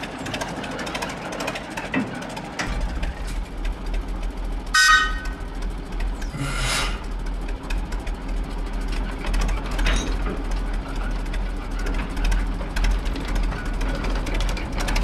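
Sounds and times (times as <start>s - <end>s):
diesel locomotive engine drone: 0.0s - 15.0s
short high-pitched tone: 4.8s - 5.4s.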